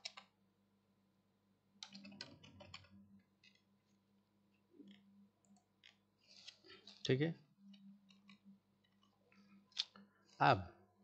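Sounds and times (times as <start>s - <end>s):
keyboard typing: 1.8s - 3.6s.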